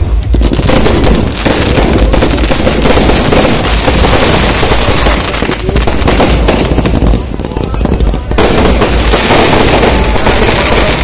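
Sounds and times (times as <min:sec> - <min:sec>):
fireworks crackling and banging: 0:00.0 - 0:11.0.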